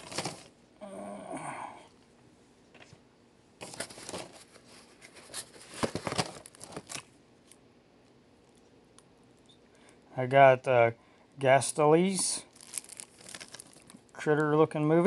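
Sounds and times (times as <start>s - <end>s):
paper and cardboard rustling: 0.0s - 0.5s, 3.6s - 7.1s.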